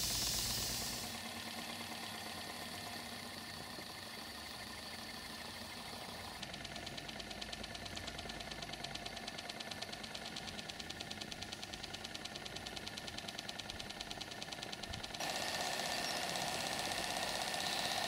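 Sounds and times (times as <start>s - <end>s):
steam hissing: 0.0s - 1.4s
model steam engine beating: 0.0s - 18.0s.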